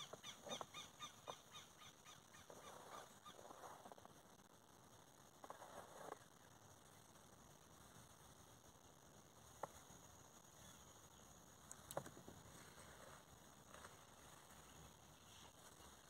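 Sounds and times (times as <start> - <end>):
faint steady hiss: 0.0 - 16.0
faint clicks: 11.6 - 12.2.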